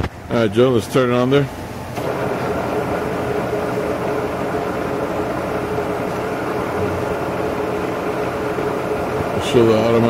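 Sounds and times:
milling machine humming: 1.5 - 10.0
motor whining tone: 2.0 - 10.0.

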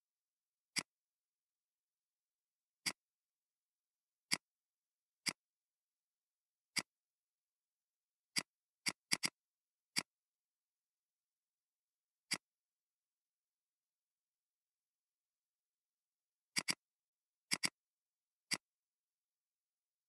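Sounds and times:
computer mouse clicks: 0.7 - 1.0, 2.8 - 3.0, 4.3 - 4.5, 5.2 - 5.4, 6.7 - 7.0, 8.3 - 10.2, 12.3 - 12.5, 16.5 - 16.9, 17.5 - 17.8, 18.4 - 18.7.

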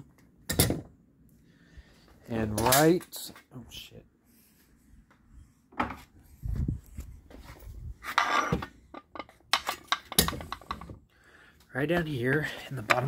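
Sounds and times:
metal scrape: 8.0 - 8.7.

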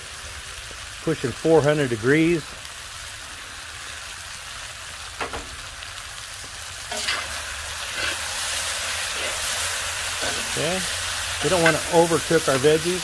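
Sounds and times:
vegetables sizzling in oil: 0.0 - 13.0
metal tongs scraping wok: 6.9 - 12.5.

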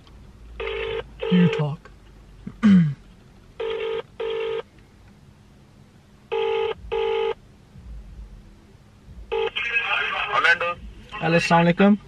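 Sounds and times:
phone ringback tone: 0.6 - 1.6, 3.6 - 4.7, 6.3 - 7.4, 9.3 - 9.6.

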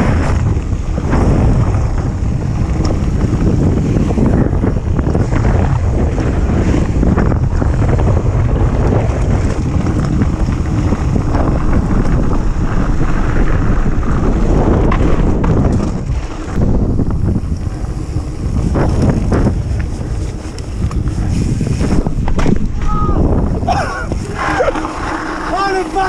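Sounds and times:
bike clicks and rattles: 0.0 - 26.0
wind buffeting microphone: 0.0 - 26.0
tyres crunching over gravel: 23.7 - 26.0.

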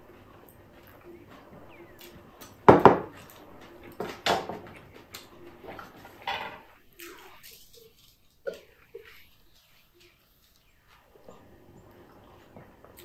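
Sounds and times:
glass bowl knocking on wooden table: 2.7 - 3.1
glass dishes clinking: 6.1 - 6.7.

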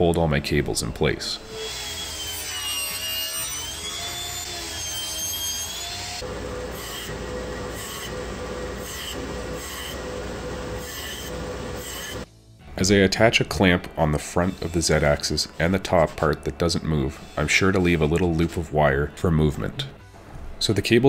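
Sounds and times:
table saw ripping wood: 1.5 - 8.2
band saw running: 1.5 - 12.3.

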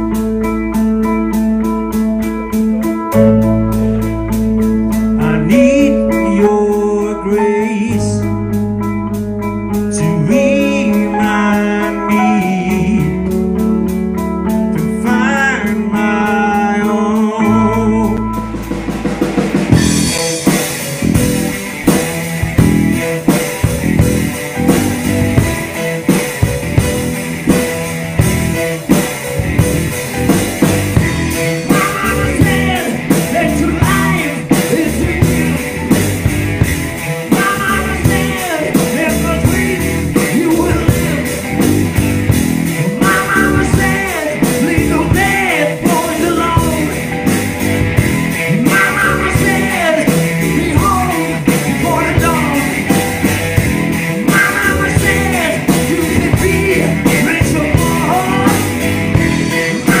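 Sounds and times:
bass guitar: 0.0 - 60.0
drum kit: 0.0 - 60.0
electric guitar: 0.0 - 60.0
man singing lead: 4.9 - 8.6, 9.7 - 13.7, 14.6 - 21.9, 29.8 - 42.0, 42.7 - 47.4, 48.0 - 60.0.

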